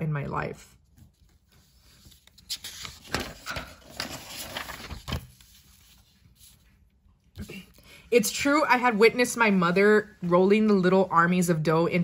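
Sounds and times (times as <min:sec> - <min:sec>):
paper page rustling: 0:00.9 - 0:07.0.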